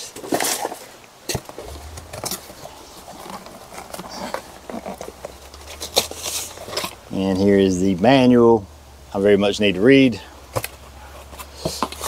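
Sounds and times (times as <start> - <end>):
packaging rustling and crinkling: 0.2 - 7.0
low steady hum: 1.4 - 12.0.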